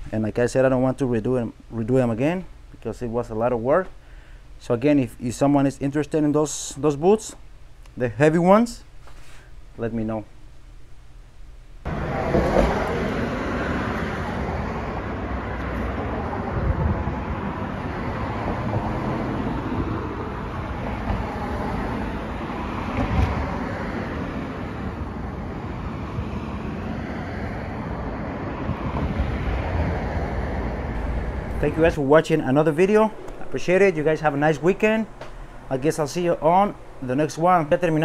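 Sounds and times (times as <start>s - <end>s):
road traffic: 11.8s - 38.0s.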